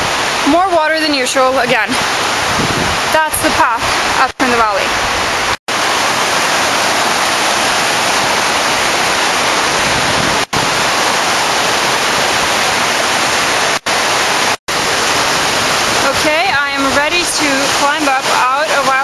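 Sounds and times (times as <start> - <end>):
stream tumbling over rocks: 0.0 - 19.0
waterfall rushing: 0.0 - 19.0.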